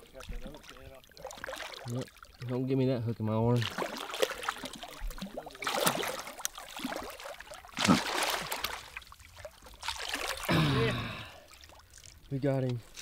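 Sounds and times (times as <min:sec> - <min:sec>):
fish splashing in water: 0:00.0 - 0:02.5, 0:03.5 - 0:13.0.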